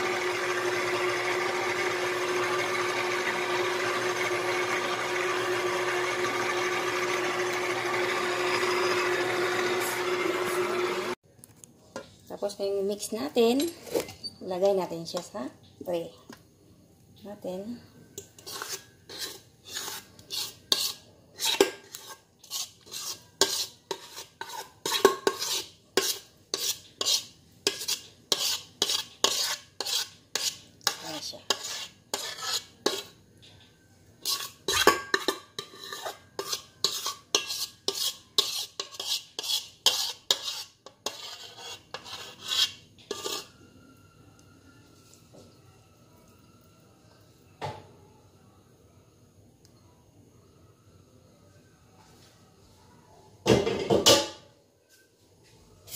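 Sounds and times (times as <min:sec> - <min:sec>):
metal spoon scraping mixing bowl: 0:00.1 - 0:11.2, 0:18.2 - 0:33.2, 0:34.2 - 0:43.6.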